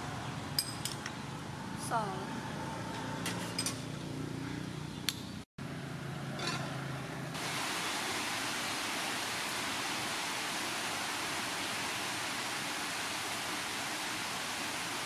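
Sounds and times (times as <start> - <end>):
rain falling on leaves: 7.4 - 15.0.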